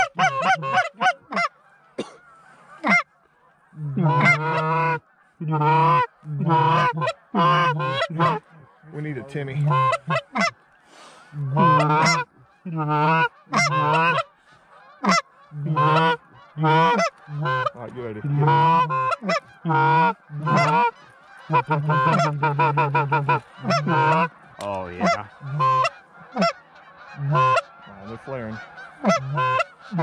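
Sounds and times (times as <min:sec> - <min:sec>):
goose honking and clucking: 0:00.0 - 0:30.0.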